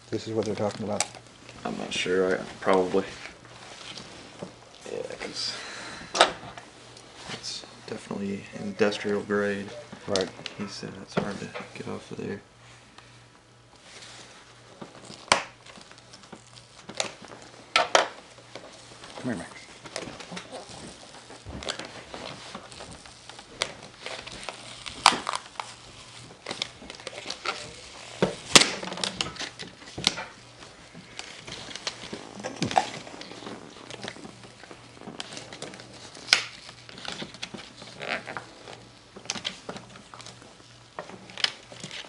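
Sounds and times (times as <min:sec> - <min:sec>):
rubber pad peeling off crackling: 0:00.1 - 0:05.4, 0:13.8 - 0:42.0.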